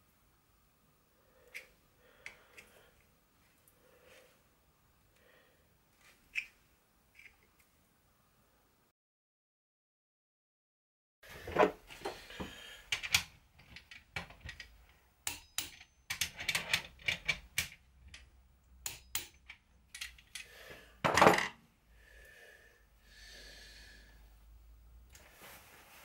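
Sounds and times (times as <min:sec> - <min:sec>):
metal clanks: 0:13.0 - 0:20.4.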